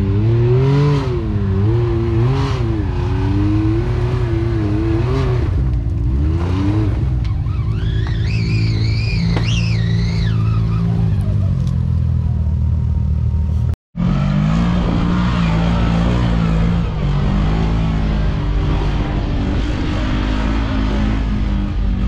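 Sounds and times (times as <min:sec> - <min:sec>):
utility vehicle engine revving: 0:00.0 - 0:22.0
utility vehicle engine running steadily: 0:00.0 - 0:22.0.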